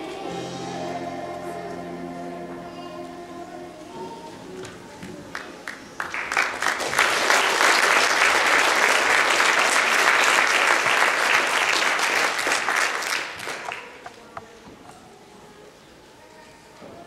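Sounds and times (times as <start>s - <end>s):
audience applauding: 5.3s - 14.0s.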